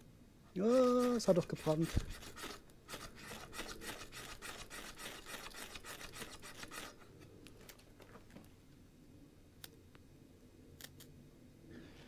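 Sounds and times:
knife scraping a ferro rod: 0:00.6 - 0:07.2.

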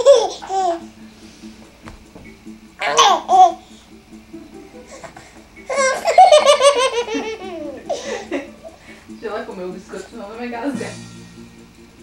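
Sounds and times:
baby laughing: 0:00.0 - 0:00.9, 0:02.8 - 0:03.7, 0:04.7 - 0:08.8.

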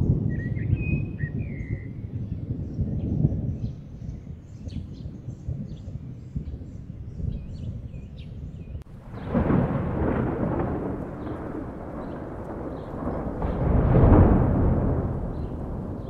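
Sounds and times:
thunder rumbling: 0:08.8 - 0:16.0.

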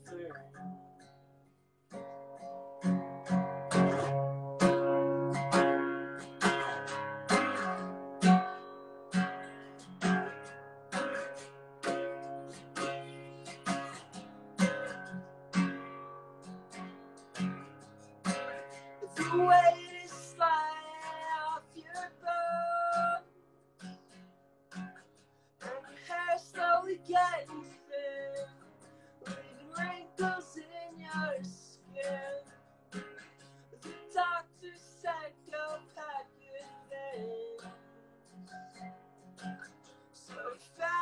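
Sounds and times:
acoustic guitar strumming: 0:00.0 - 0:41.0
person singing: 0:19.0 - 0:23.3, 0:25.6 - 0:32.5, 0:33.8 - 0:37.8, 0:40.2 - 0:41.0.

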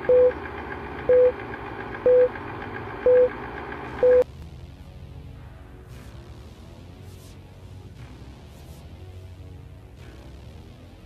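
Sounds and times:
film projector clatter: 0:00.0 - 0:04.0
short loud beeps: 0:04.0 - 0:04.2.

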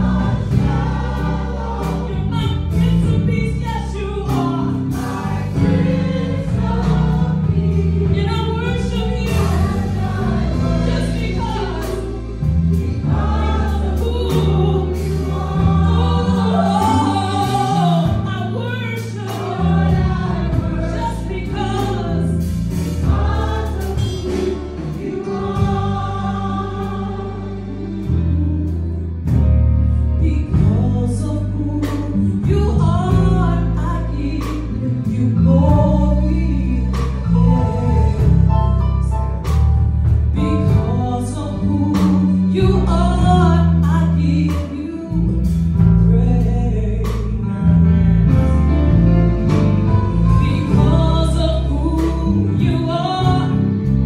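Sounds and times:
backing vocalists: 0:00.0 - 0:29.1
deep sustained bass line: 0:00.0 - 0:54.0
woman singing lead: 0:01.9 - 0:29.4.

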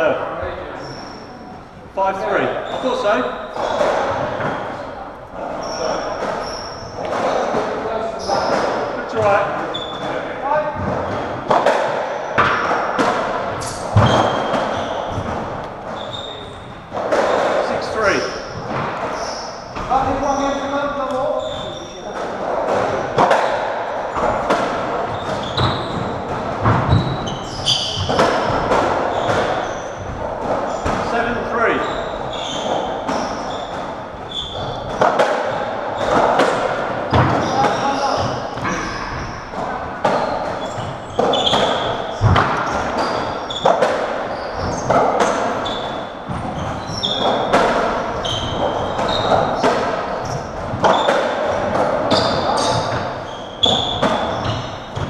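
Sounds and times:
short high squeaks: 0:00.8 - 0:01.5, 0:05.5 - 0:07.5, 0:09.7 - 0:10.2, 0:16.0 - 0:16.7, 0:17.6 - 0:22.0, 0:26.9 - 0:28.5, 0:29.1 - 0:35.0, 0:40.2 - 0:47.5, 0:48.1 - 0:49.6, 0:52.1 - 0:54.9
racquetball hitting walls: 0:02.5 - 0:55.0.

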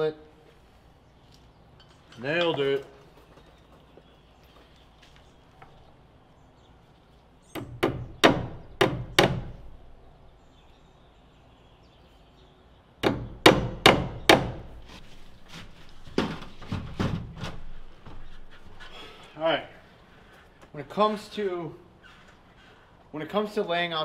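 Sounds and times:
hammer striking staples into wood: 0:07.5 - 0:09.6, 0:13.0 - 0:14.7.

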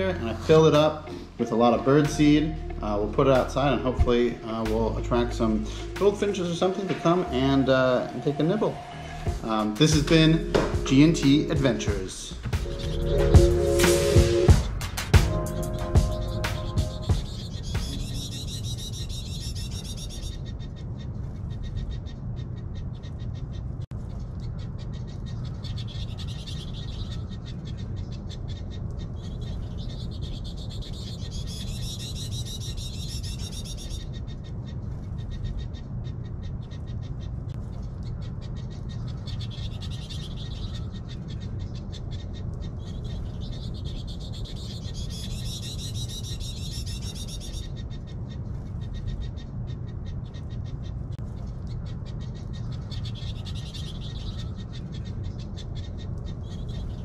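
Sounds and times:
low rumble: 0:00.0 - 0:18.6
small animals chattering: 0:24.4 - 0:57.0.

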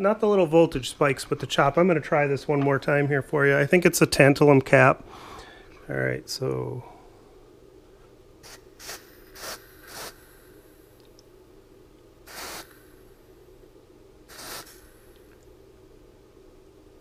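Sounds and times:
freeze spray hissing in bursts: 0:08.4 - 0:10.6, 0:12.2 - 0:13.0, 0:14.3 - 0:15.2.

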